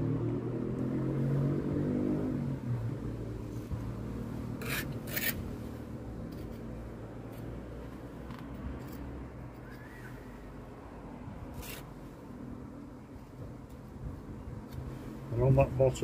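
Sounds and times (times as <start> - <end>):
vehicle engine drone: 0.0 - 16.0
metal tool scraping mortar: 4.6 - 5.6, 6.2 - 7.5, 11.5 - 11.9.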